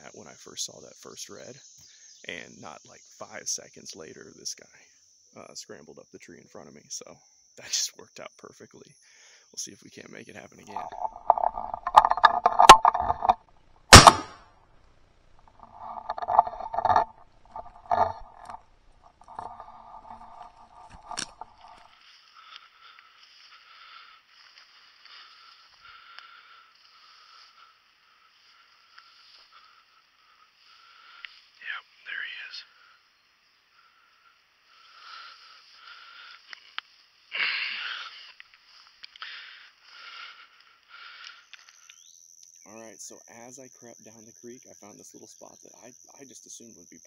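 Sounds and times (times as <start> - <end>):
sharp clicks: 10.7 - 14.4, 15.4 - 21.8
brush rustling and scraping: 15.4 - 22.4
person breathing heavily: 19.2 - 31.6, 33.8 - 41.6.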